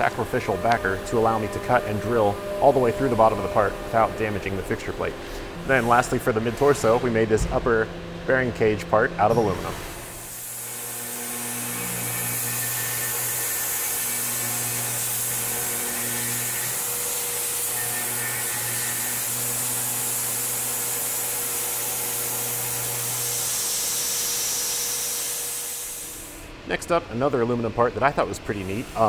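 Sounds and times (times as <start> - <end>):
milling machine cutting metal: 0.0 - 26.4
steady nozzle hiss: 23.3 - 26.4.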